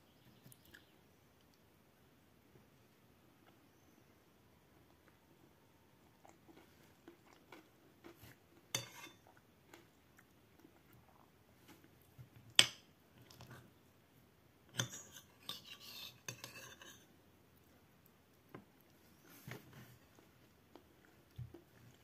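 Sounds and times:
metal spoon scraping a plate: 0:08.7 - 0:09.2, 0:14.8 - 0:17.1.

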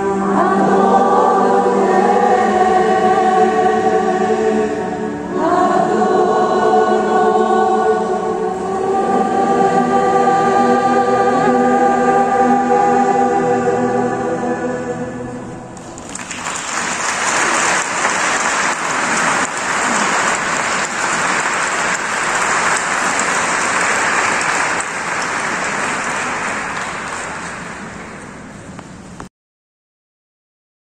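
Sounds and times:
choir holding a chord: 0:00.0 - 0:28.6
congregation applauding: 0:15.8 - 0:28.7.

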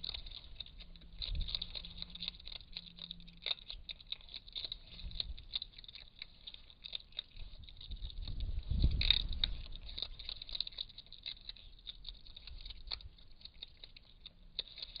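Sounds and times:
otter crunching food: 0:00.0 - 0:15.0
deep rumble: 0:07.3 - 0:10.4.

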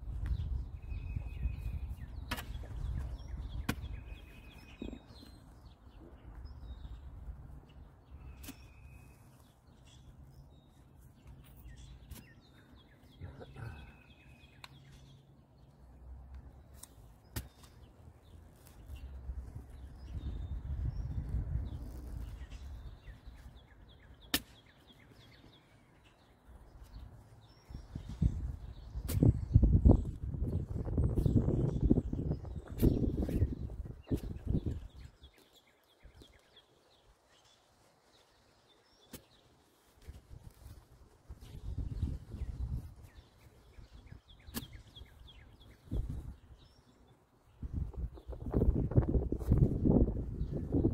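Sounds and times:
small birds chirping: 0:00.0 - 0:50.9
shovel digging soil: 0:01.9 - 0:05.4, 0:08.2 - 0:09.3, 0:11.2 - 0:12.5, 0:16.6 - 0:20.4, 0:24.1 - 0:25.2, 0:28.8 - 0:29.5, 0:44.4 - 0:45.1
spade chopping into soil: 0:02.2 - 0:04.2, 0:08.3 - 0:08.7, 0:16.7 - 0:17.8, 0:24.2 - 0:24.8, 0:29.0 - 0:29.4, 0:44.4 - 0:45.0.

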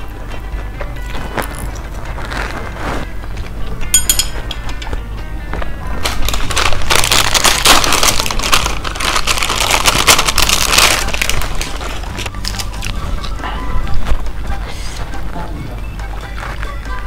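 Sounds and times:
snack packet crinkling: 0:00.8 - 0:03.1, 0:06.0 - 0:14.2.

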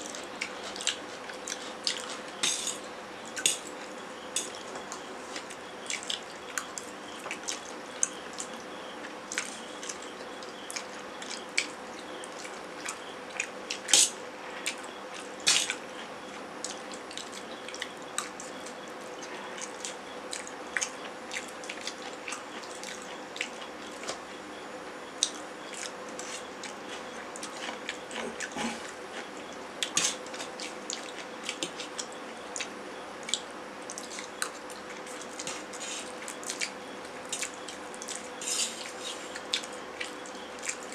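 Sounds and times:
wet chewing: 0:00.0 - 0:02.4
faint steady hum: 0:00.0 - 0:40.9.

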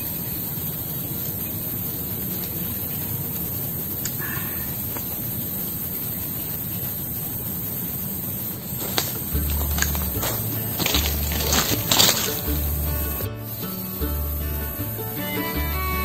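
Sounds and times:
forest ambience hiss: 0:00.0 - 0:16.0
faint ticks: 0:02.2 - 0:05.7.

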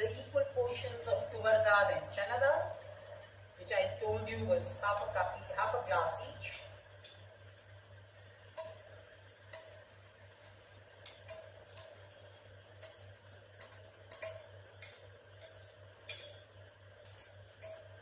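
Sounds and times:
metal spoon scraping metal vessel: 0:13.6 - 0:16.4.

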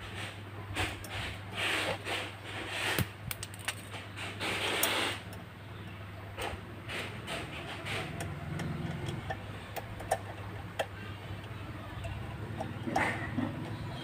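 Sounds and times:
bolt scraping on steel tube: 0:00.2 - 0:05.4, 0:06.4 - 0:11.0, 0:12.0 - 0:14.0.

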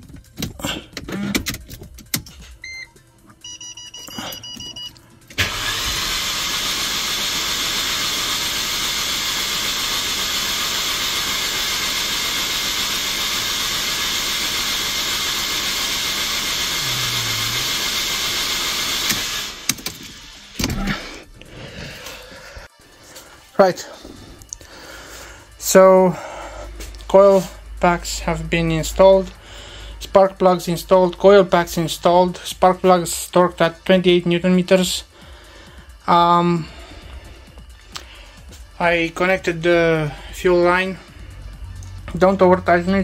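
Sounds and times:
engine cranking whirr: 0:00.0 - 0:02.6, 0:04.4 - 0:21.4
electronic beeps: 0:02.6 - 0:05.0.

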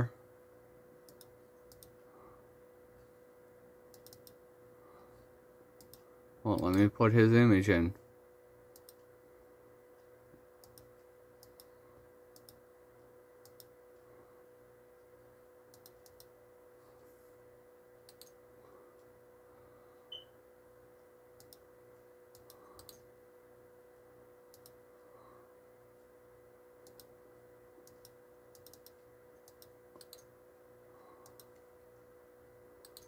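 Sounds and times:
faint steady hum: 0:00.0 - 0:33.0
laptop controls clicking: 0:03.9 - 0:04.4.

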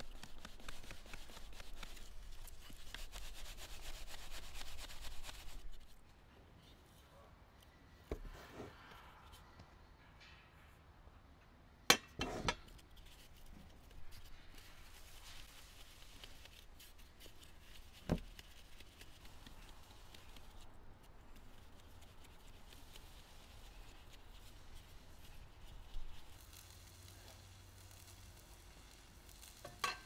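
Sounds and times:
flour rustling through sieve: 0:00.0 - 0:06.0, 0:13.1 - 0:20.6, 0:21.3 - 0:29.6.

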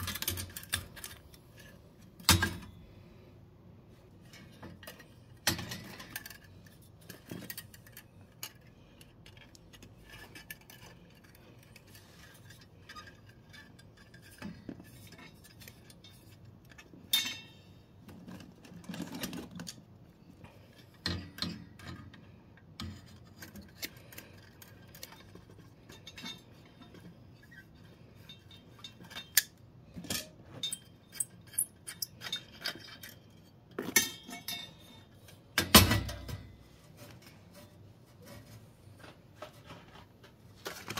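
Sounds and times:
light metallic clinks and scrapes: 0:04.2 - 0:35.6.

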